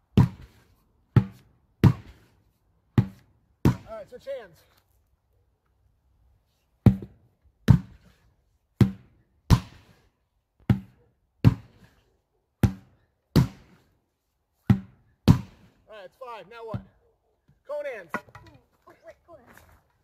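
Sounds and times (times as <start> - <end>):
sledgehammer thuds on rubber tire: 0.1 - 0.5, 1.1 - 2.3, 2.9 - 4.0, 6.8 - 8.0, 8.8 - 9.9, 10.6 - 11.8, 12.6 - 13.8, 14.6 - 15.8.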